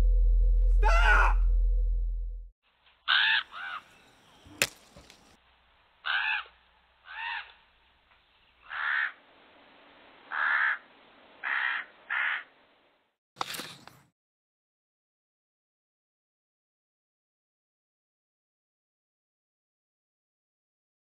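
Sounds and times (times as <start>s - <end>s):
crow cawing: 3.1s - 4.0s, 6.0s - 7.6s, 8.6s - 9.2s, 10.3s - 10.8s, 11.4s - 12.5s.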